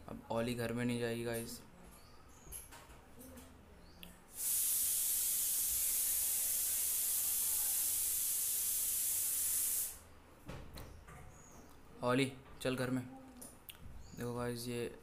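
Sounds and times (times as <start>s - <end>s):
high-pitched hiss: 4.3s - 10.0s.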